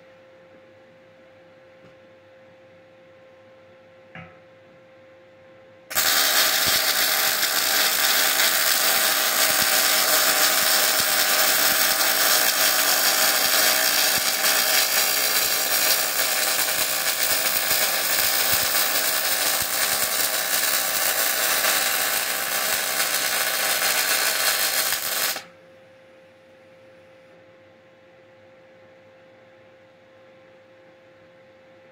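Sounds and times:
arc welding crackling buzz: 5.9s - 25.5s.

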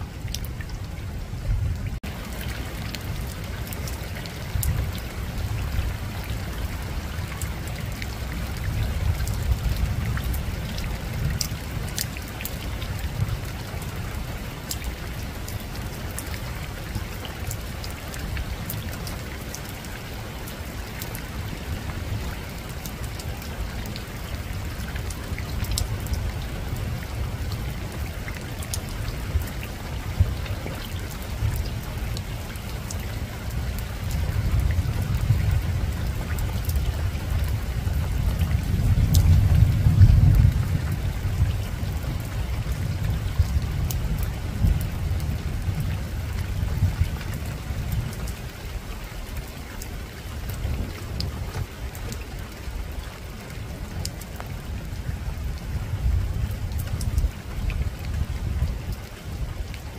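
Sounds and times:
rain on a rooftop: 0.0s - 59.9s
distant thunder rumble: 33.4s - 47.9s.

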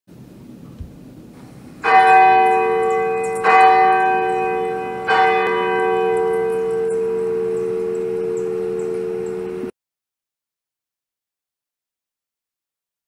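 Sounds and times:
church bell ringing: 1.8s - 9.7s.

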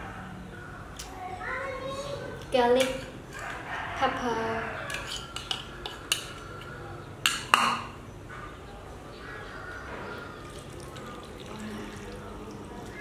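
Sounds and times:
spoon scraping seasoning: 4.9s - 6.7s.

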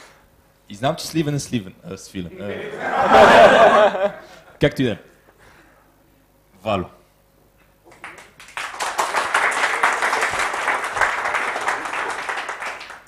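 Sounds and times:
audience applauding: 7.9s - 13.0s.

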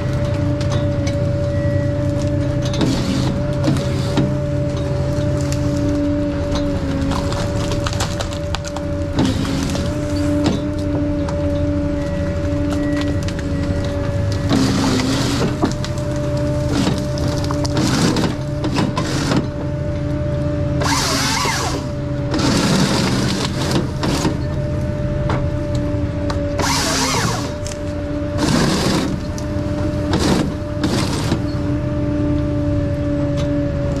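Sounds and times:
forest harvester running: 0.0s - 34.0s
harvester head cutting timber: 2.1s - 11.5s, 12.4s - 19.7s, 20.8s - 24.6s, 26.3s - 31.6s.

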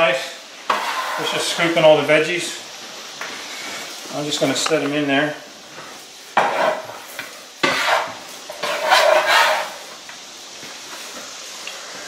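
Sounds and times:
greens sizzling in skillet: 0.0s - 12.0s
metal scraper scraping: 0.7s - 1.4s, 6.4s - 7.0s, 7.6s - 9.8s.

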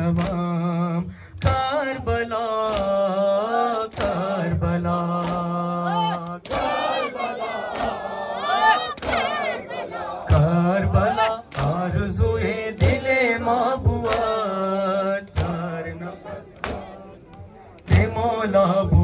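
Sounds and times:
people beating their chests: 2.5s - 3.1s, 3.8s - 18.3s.

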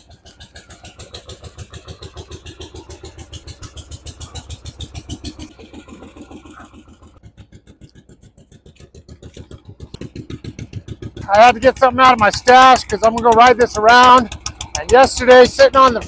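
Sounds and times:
motorcycle engine idling: 0.0s - 16.0s.

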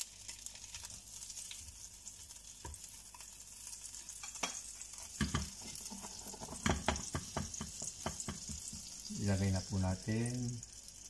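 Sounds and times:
butter sizzling in a frying pan: 0.0s - 11.0s
spatula knocking on pan: 5.2s - 5.7s, 6.4s - 8.9s.

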